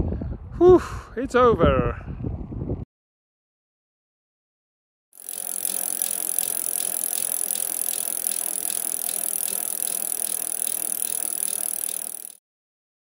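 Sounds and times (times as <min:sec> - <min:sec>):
bicycle ticking: 0:05.2 - 0:12.4.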